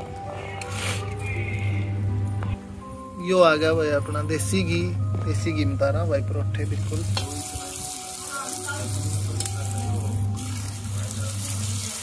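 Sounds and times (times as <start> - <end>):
ghee sizzling on a hot pan: 6.6 - 12.0
metal utensil clicking against pan: 7.1 - 7.3.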